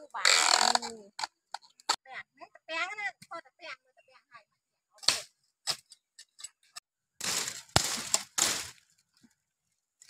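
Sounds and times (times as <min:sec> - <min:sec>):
twigs snapping and crackling: 0:07.2 - 0:09.0.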